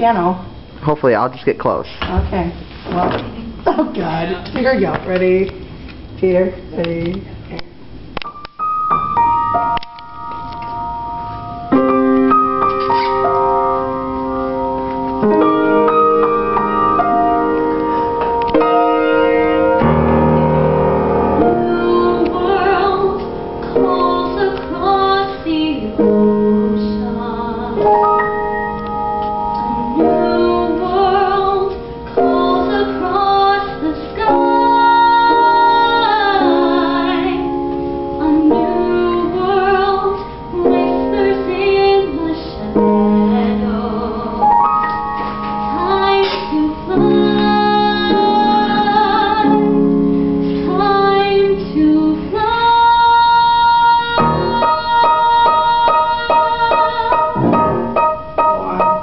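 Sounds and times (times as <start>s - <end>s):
piano playing chords: 8.1s - 59.0s
vocal ensemble singing: 53.7s - 59.0s.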